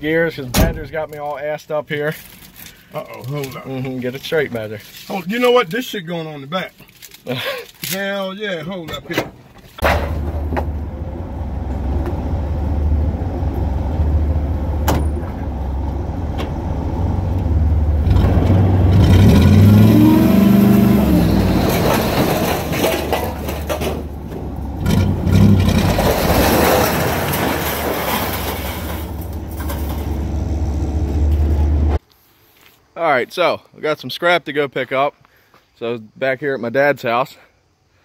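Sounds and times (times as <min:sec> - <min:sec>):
truck engine running and revving: 0:09.9 - 0:32.0
scrap metal sliding off: 0:20.6 - 0:30.5.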